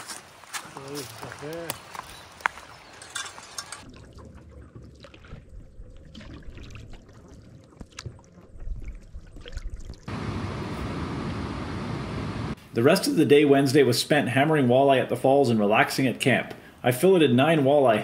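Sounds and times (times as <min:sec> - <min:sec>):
water drips and splashes: 0:00.9 - 0:10.1
steady rushing sound: 0:10.1 - 0:12.6.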